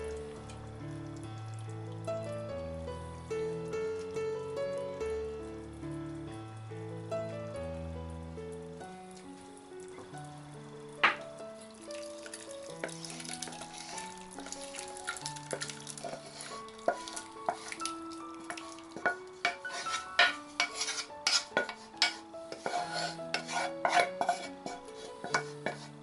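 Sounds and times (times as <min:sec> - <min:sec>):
soft background music: 0:00.0 - 0:26.0
wooden spoon scraping a pot: 0:12.8 - 0:14.2, 0:15.2 - 0:26.0.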